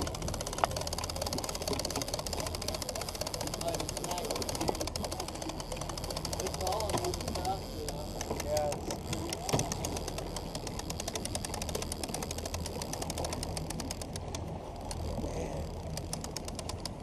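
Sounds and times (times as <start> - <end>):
boat engine hum: 0.0 - 17.0
fishing reel clicking: 0.0 - 17.0.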